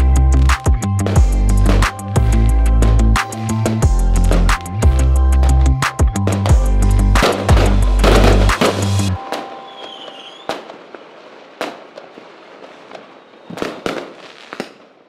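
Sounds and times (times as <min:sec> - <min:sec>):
music with heavy bass: 0:00.0 - 0:09.2
fireworks bangs: 0:07.2 - 0:15.0
fireworks crackle: 0:07.2 - 0:15.0
high firework whistle: 0:08.2 - 0:10.8, 0:12.6 - 0:14.8.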